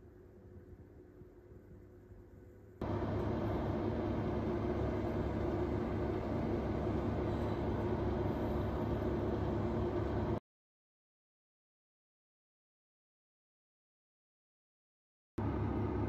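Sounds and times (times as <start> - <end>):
oven fan humming: 0.0 - 10.4, 15.4 - 16.0.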